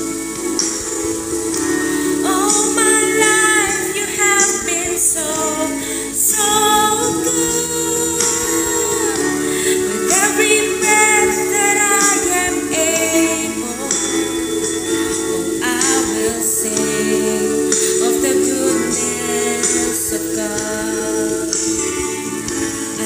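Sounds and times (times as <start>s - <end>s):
karaoke backing track: 0.0s - 23.0s
woman singing: 0.0s - 23.0s.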